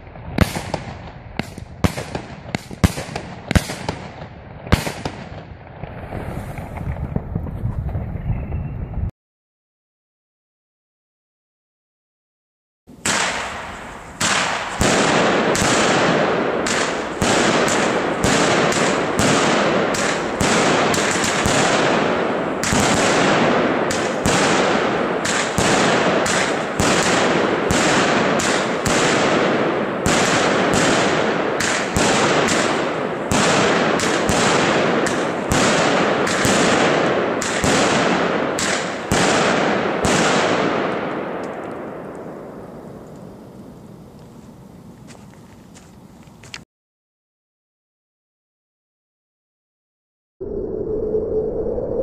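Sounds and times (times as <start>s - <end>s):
firework shots popping: 0.0s - 8.1s, 13.0s - 43.3s.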